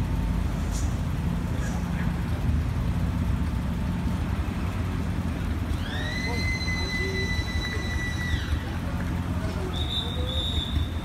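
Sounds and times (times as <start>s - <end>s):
engine idling: 0.0s - 11.0s
high whistle-like tone: 9.7s - 11.0s.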